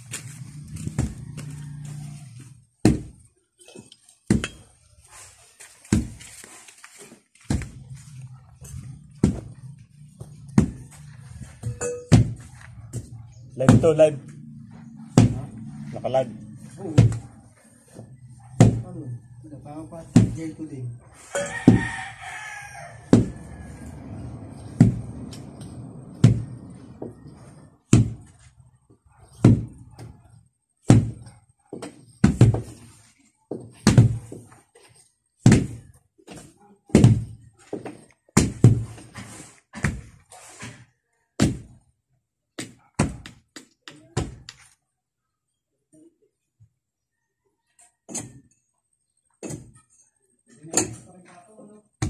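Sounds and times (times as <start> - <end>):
wooden tampers thudding on soil: 2.8 - 9.6, 30.8 - 41.8.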